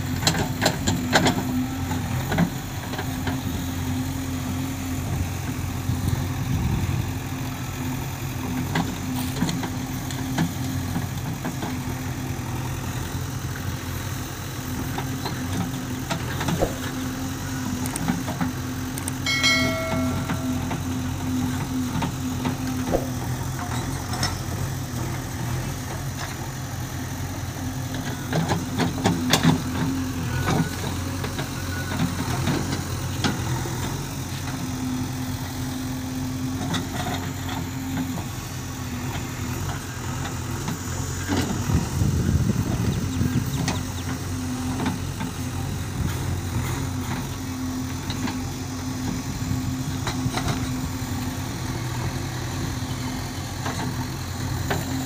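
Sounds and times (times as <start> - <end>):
diesel engine running: 0.0 - 55.0
metal clanks: 19.2 - 21.1.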